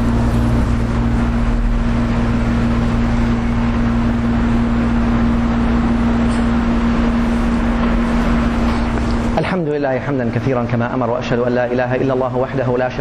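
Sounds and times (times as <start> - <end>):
low rumble: 0.0 - 9.4
constant humming tone: 0.0 - 13.0.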